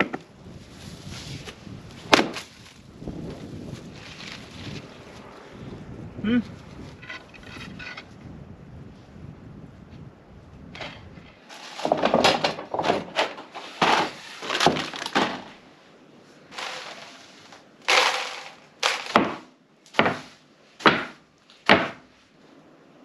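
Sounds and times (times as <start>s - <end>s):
broom sweeping wood chips: 11.4s - 12.0s, 13.5s - 14.6s, 16.5s - 19.2s
debris scattering: 11.5s - 15.6s, 16.5s - 19.5s.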